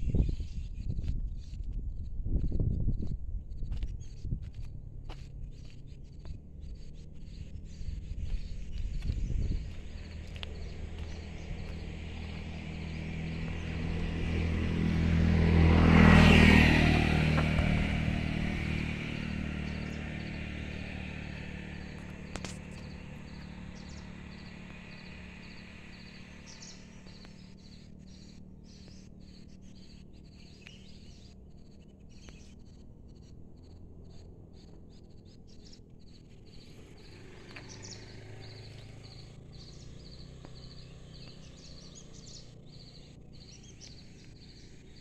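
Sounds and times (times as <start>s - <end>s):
motor vehicle passing by: 0.0s - 45.0s
insects chirping: 19.6s - 32.4s.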